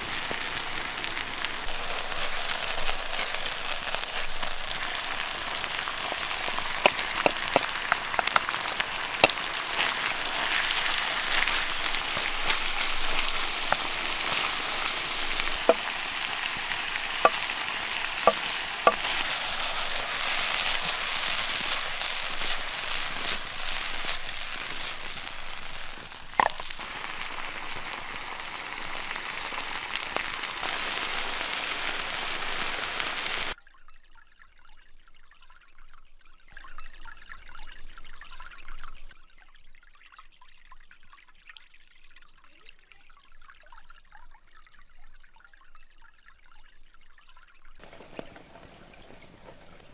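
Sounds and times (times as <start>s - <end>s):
food sizzling in a frying pan: 0.0s - 33.6s, 47.8s - 49.9s
sharp pops: 1.7s - 33.6s.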